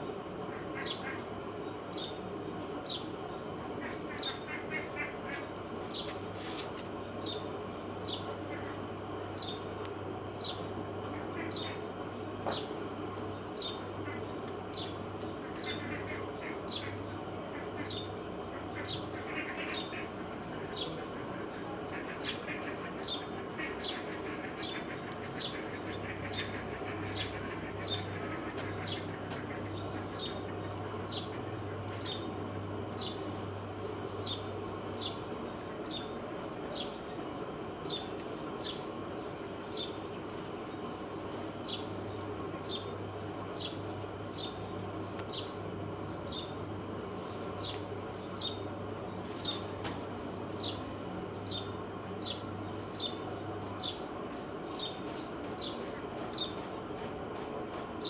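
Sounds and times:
steady background hum: 0:00.0 - 0:58.0.

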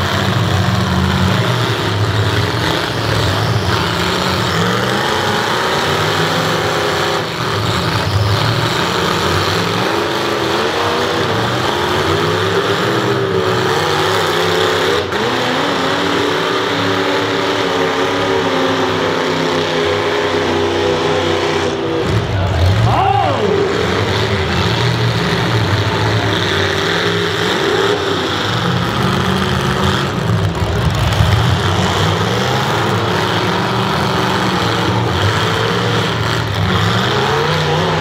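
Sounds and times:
car engines revving: 0:00.0 - 0:38.0.

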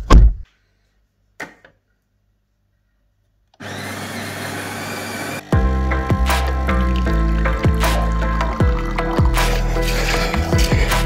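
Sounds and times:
coffee grinder running: 0:03.6 - 0:06.3.

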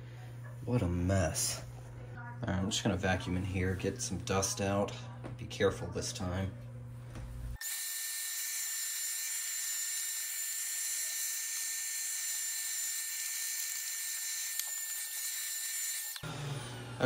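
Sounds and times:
vacuum cleaner whining: 0:07.6 - 0:17.0.

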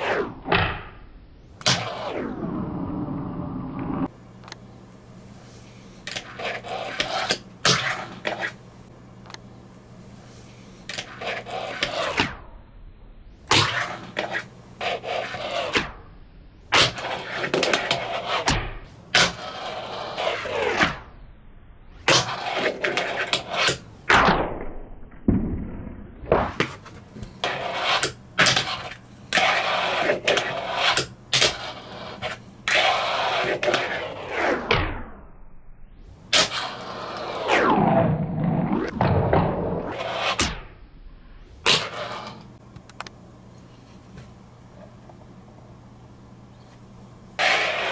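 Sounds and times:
fingerboard rolling on desk: 0:06.1 - 0:08.6, 0:10.9 - 0:12.2, 0:13.7 - 0:15.8, 0:16.9 - 0:18.5, 0:19.2 - 0:20.7, 0:22.2 - 0:23.8, 0:26.4 - 0:34.2, 0:36.4 - 0:40.4, 0:41.7 - 0:42.5.

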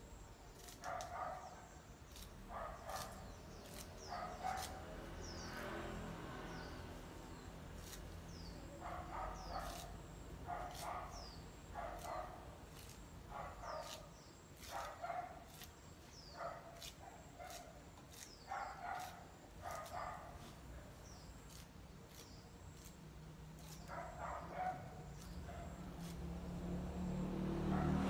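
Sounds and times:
dog barking: 0:00.8 - 0:01.6, 0:02.5 - 0:03.3, 0:04.0 - 0:04.9, 0:08.8 - 0:11.2, 0:11.8 - 0:12.5, 0:13.3 - 0:15.6, 0:16.4 - 0:17.8, 0:18.5 - 0:21.0, 0:23.9 - 0:26.2, 0:27.1 - 0:28.0.

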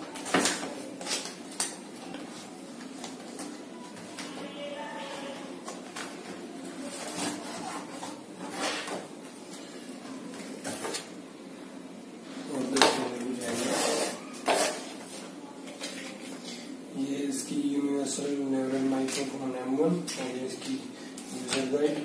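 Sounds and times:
cardboard and plastic rustling: 0:05.6 - 0:11.1.

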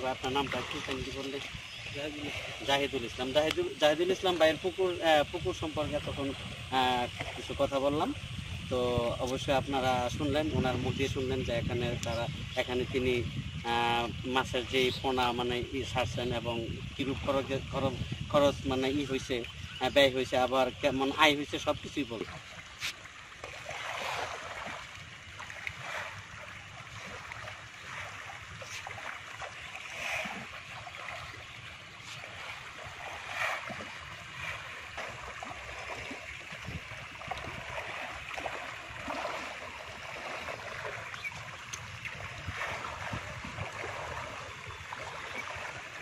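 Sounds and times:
wind on microphone: 0:00.0 - 0:20.2, 0:29.8 - 0:46.0
faint small water splashes: 0:20.8 - 0:46.0.

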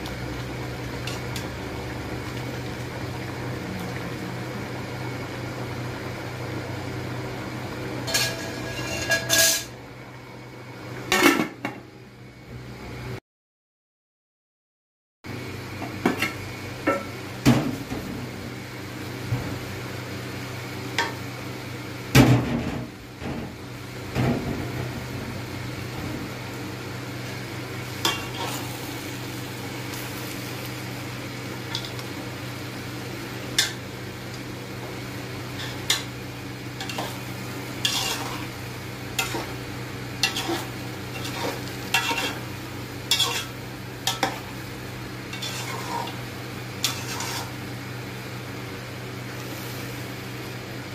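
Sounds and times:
metal spoon scraping a pot: 0:08.1 - 0:09.7, 0:37.8 - 0:38.5, 0:40.2 - 0:42.4, 0:43.1 - 0:43.5, 0:45.3 - 0:46.2, 0:46.8 - 0:47.6.

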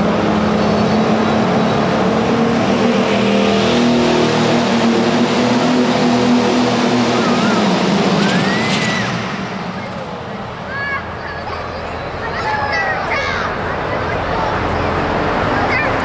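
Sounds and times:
tractor engine droning: 0:00.0 - 0:12.4.

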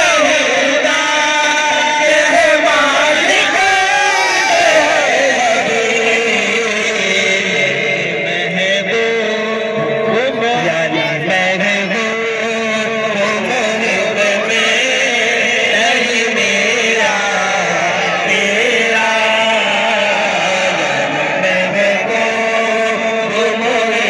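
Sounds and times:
man chanting into microphone: 0:00.0 - 0:24.0.

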